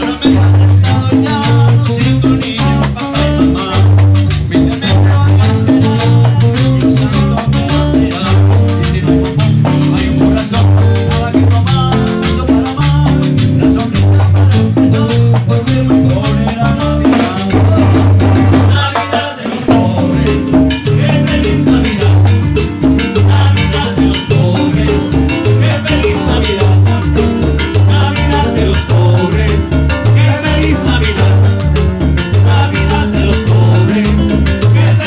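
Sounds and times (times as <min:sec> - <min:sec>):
bass: 0:00.0 - 0:35.0
saxophone: 0:16.6 - 0:21.5.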